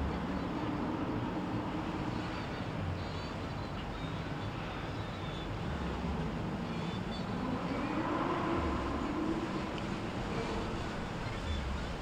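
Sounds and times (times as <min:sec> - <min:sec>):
motorboat engines humming: 0:00.0 - 0:12.0
rushing noise: 0:07.3 - 0:11.9.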